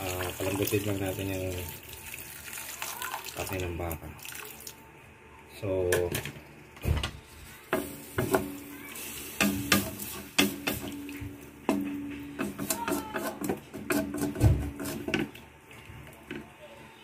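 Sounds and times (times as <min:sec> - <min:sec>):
wooden spatula stirring in wok: 0:07.6 - 0:16.5
spatula knocking and scraping pan: 0:07.7 - 0:08.7, 0:09.3 - 0:15.4.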